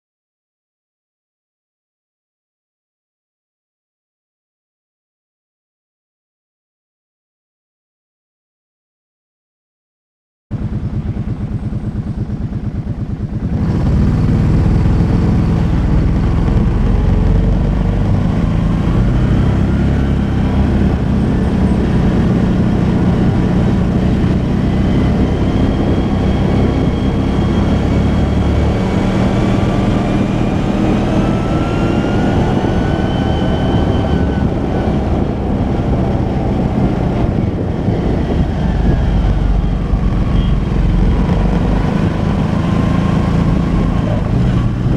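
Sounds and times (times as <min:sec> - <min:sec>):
quad bike engine revving: 0:10.6 - 0:44.9.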